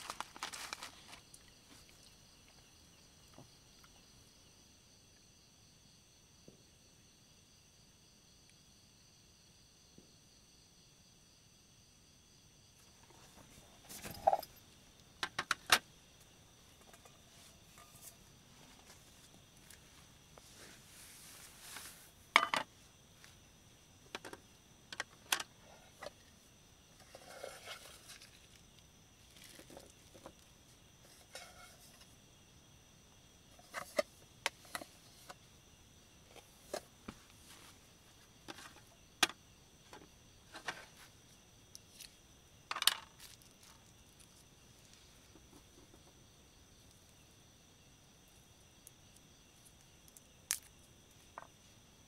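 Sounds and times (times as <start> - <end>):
high insect trill: 0.0 - 52.0
metal camp pot clattering: 13.8 - 14.6, 16.7 - 18.2, 22.4 - 22.7, 42.7 - 43.4.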